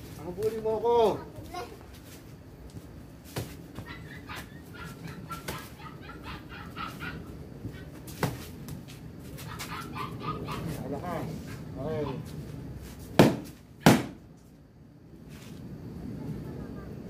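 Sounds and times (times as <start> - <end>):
kicks slapping kick paddles: 3.3 - 3.9, 8.1 - 8.5, 13.2 - 14.2.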